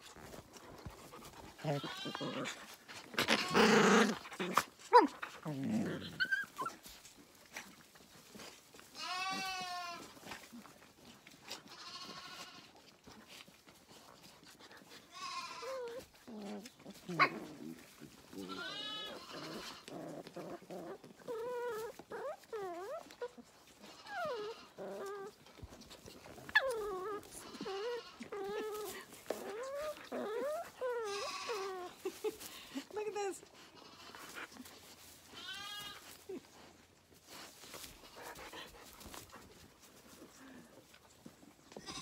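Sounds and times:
lambs bleating: 1.6s - 2.6s, 3.2s - 4.0s, 9.0s - 10.2s, 11.6s - 12.7s, 15.1s - 15.9s, 18.4s - 19.9s, 23.8s - 24.8s, 26.6s - 28.9s, 30.9s - 32.0s, 33.7s - 34.4s, 35.2s - 36.2s, 41.8s - 42.0s.

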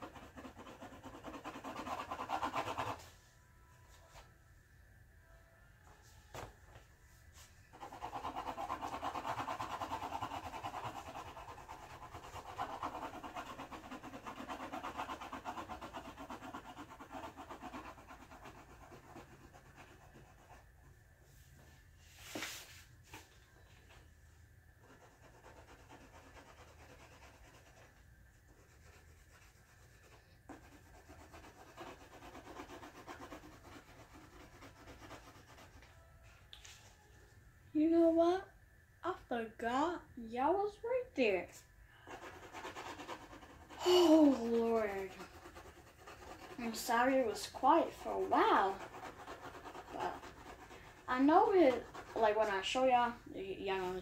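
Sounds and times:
pencil scratching on paper: 0.0s - 3.1s, 7.7s - 20.8s, 24.8s - 35.9s, 42.0s - 54.0s.

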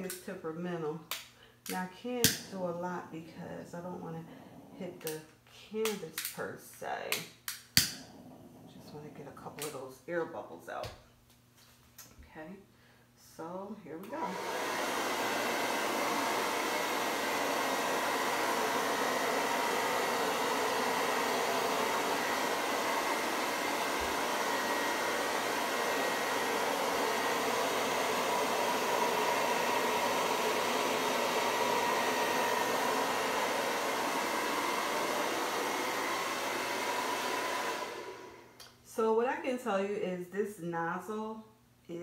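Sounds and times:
hair dryer blowing: 1.7s - 6.4s, 7.8s - 9.9s, 13.9s - 39.1s.

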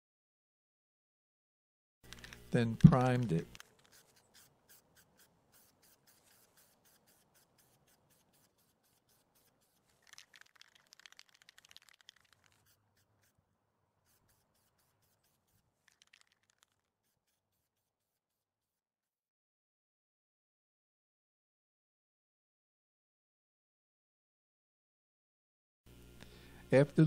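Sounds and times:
aerosol spray can hissing: 3.0s - 13.4s, 14.0s - 18.2s.

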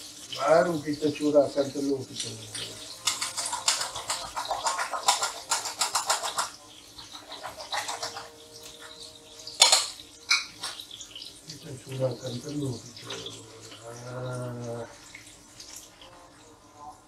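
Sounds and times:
utensil clinking against metal bowl: 2.1s - 10.9s.

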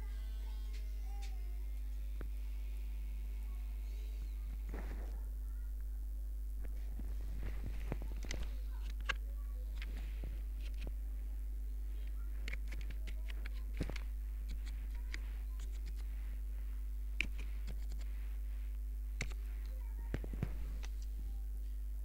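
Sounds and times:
low electrical hum: 0.0s - 22.0s
faint clicks and ticks: 12.0s - 16.2s, 18.7s - 21.2s.

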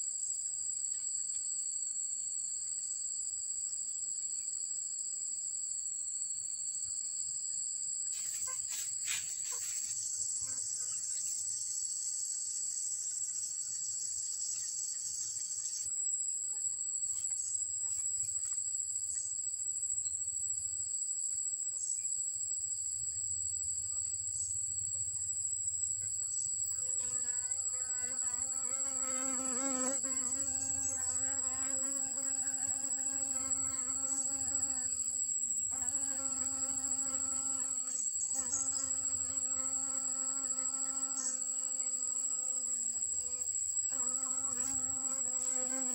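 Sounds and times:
high-pitched insect chorus: 0.0s - 45.9s
bee buzzing close by: 26.7s - 45.9s.

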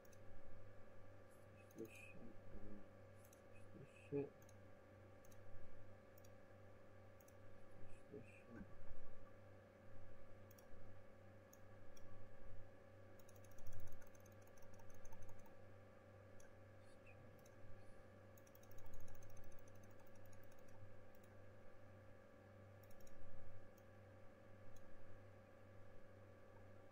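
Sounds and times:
computer mouse clicks: 0.0s - 0.3s, 3.2s - 3.5s, 4.4s - 4.6s, 5.2s - 5.5s, 6.1s - 6.4s, 7.2s - 7.4s, 10.4s - 10.7s, 11.5s - 12.1s, 13.2s - 15.6s, 16.4s - 16.6s, 17.3s - 17.6s, 18.3s - 21.4s, 22.8s - 23.9s, 24.7s - 24.9s
steady low hum: 0.0s - 26.9s.

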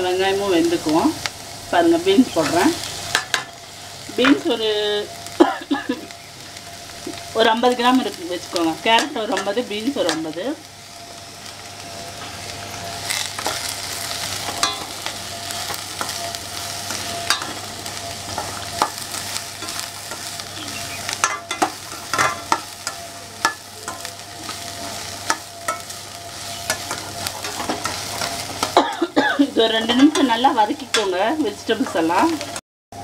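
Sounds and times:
vegetables sizzling in oil: 0.0s - 33.0s
metal spatula scraping pan: 12.7s - 28.8s.

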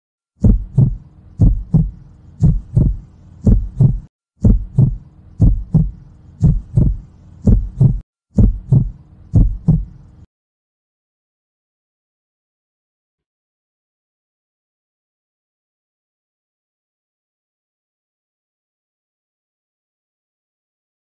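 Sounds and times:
heartbeat double thumps: 0.4s - 10.1s
faint low hum: 0.4s - 10.3s.

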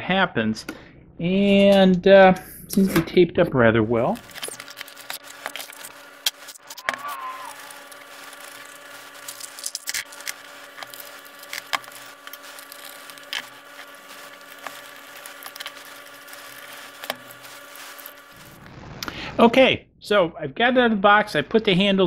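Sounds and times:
faint hum: 0.0s - 22.0s
plastic packaging rustling: 4.1s - 18.7s.

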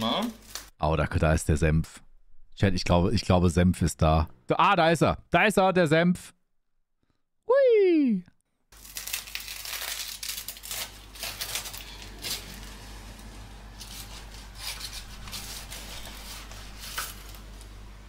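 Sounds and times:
knife sawing through toast: 13.8s - 17.2s.

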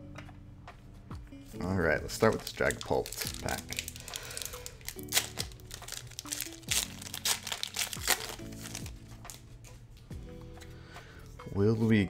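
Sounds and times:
background music: 0.0s - 12.0s
foil wrapper crinkling and tearing: 2.1s - 9.4s.

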